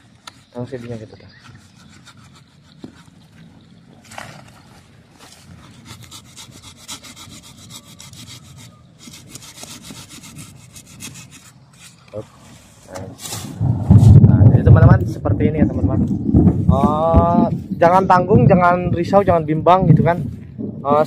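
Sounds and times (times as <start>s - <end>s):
hand saw cutting wood: 1.4s - 3.2s, 5.5s - 13.5s.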